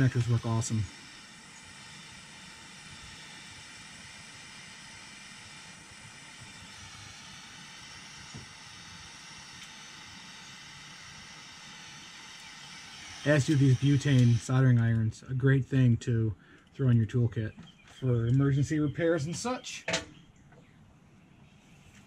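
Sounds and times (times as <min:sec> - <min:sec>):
soldering torch hissing: 0:00.0 - 0:14.6.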